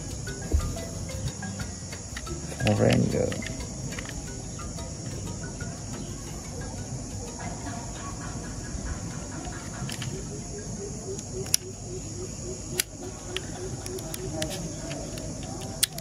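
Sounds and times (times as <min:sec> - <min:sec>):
crickets chirring: 0:00.0 - 0:16.0
toy car door clicks: 0:02.2 - 0:04.3, 0:09.4 - 0:10.3, 0:11.2 - 0:11.7, 0:12.7 - 0:16.0.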